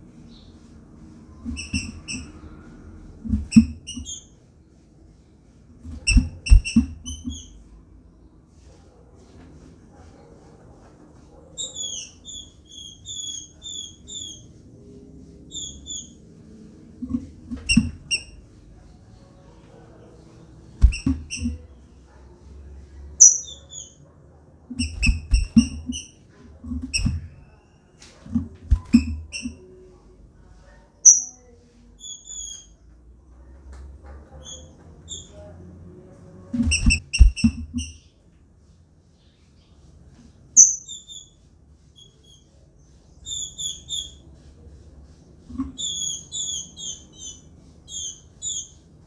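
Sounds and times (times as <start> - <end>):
bird thumping and fluttering in cage: 3.2 - 4.1, 5.8 - 7.5, 20.7 - 21.7, 24.7 - 27.4, 28.2 - 29.5, 36.4 - 37.9.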